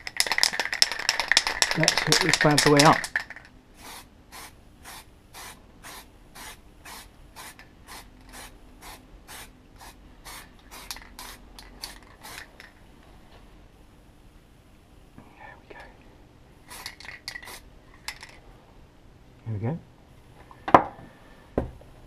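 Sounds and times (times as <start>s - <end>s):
aerosol spray bursts: 3.8s - 12.5s.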